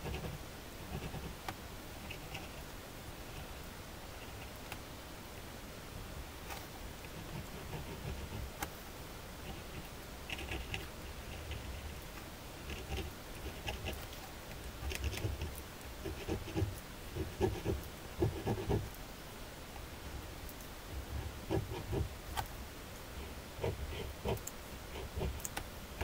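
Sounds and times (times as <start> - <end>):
ballpoint pen scratching on paper: 0.0 - 1.4, 7.2 - 8.5, 12.7 - 14.0, 14.8 - 18.9, 21.2 - 22.1, 23.2 - 25.5.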